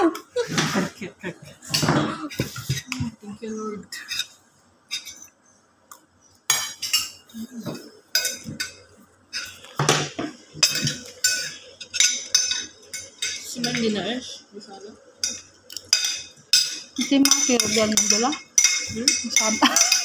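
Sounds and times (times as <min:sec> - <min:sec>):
utensils clinking against pot and bowl: 0:04.0 - 0:05.3, 0:06.5 - 0:07.3, 0:08.1 - 0:14.1, 0:15.2 - 0:20.0.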